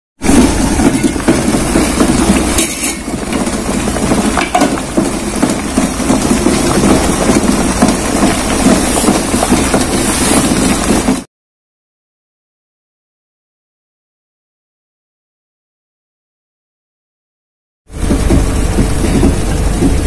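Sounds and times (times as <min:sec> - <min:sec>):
water boiling in a pot: 0:00.2 - 0:11.2.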